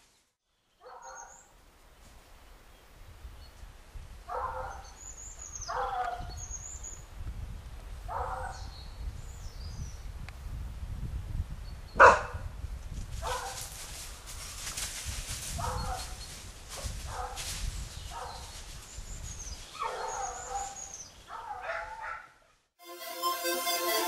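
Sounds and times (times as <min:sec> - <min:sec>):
dog barking: 0:00.8 - 0:01.4, 0:04.3 - 0:04.9, 0:05.7 - 0:06.3, 0:08.1 - 0:08.7, 0:12.0 - 0:12.4, 0:13.2 - 0:13.6, 0:15.6 - 0:16.2, 0:17.1 - 0:17.4, 0:18.1 - 0:18.4, 0:19.8 - 0:22.5.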